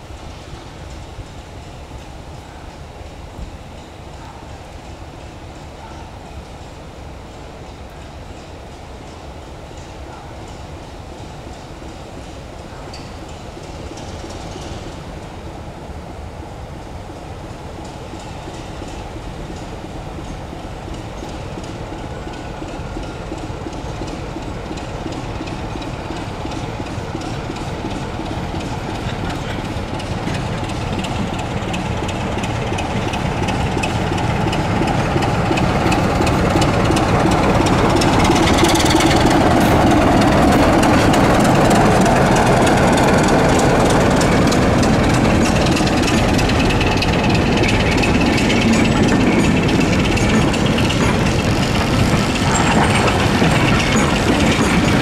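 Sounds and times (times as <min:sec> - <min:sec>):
wheels clicking over rail joints: 0:17.8 - 0:55.0
locomotive engine running: 0:19.1 - 0:55.0.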